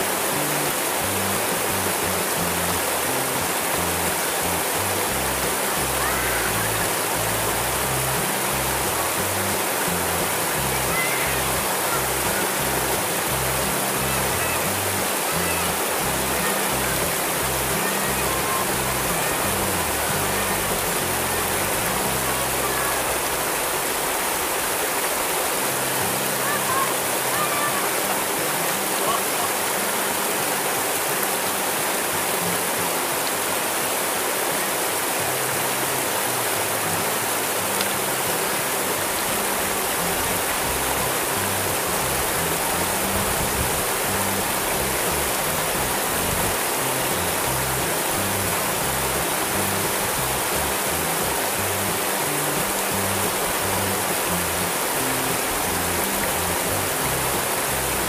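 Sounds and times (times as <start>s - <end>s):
background music with bass: 0.0s - 23.4s
river rushing over rocks: 0.0s - 58.0s.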